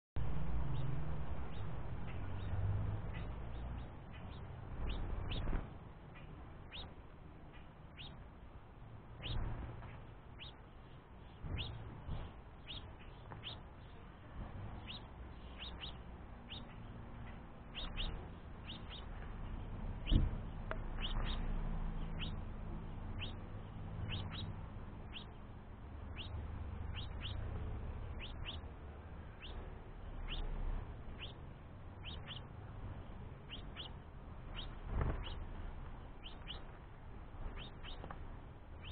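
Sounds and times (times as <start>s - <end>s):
finch chirps: 0.5s - 8.3s, 9.1s - 38.9s.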